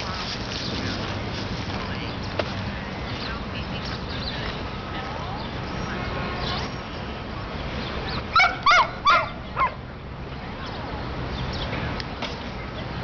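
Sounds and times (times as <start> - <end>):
dog yipping: 8.3 - 9.8.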